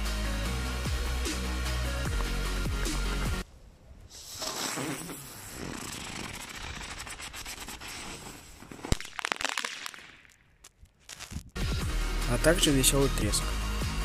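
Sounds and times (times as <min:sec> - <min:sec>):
firework fizzing hiss: 0:04.1 - 0:10.3
quick firework pops: 0:04.1 - 0:11.6.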